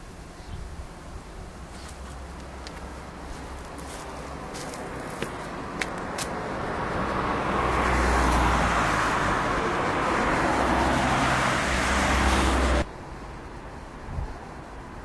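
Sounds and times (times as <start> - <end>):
car driving past: 6.5 - 12.9.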